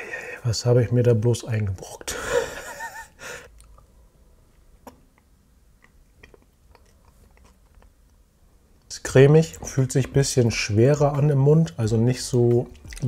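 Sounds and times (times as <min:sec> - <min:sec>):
person chewing: 0:03.5 - 0:08.3, 0:11.9 - 0:13.0.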